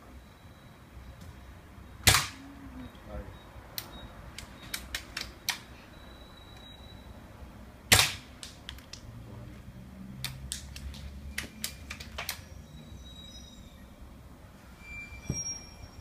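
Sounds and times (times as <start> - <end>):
air rifle shot: 2.0 - 2.4, 7.9 - 8.3.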